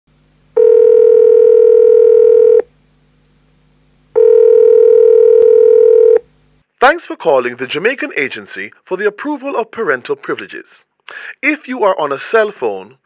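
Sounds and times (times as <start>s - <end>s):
telephone ringback tone: 0.6s - 2.7s, 4.2s - 6.2s.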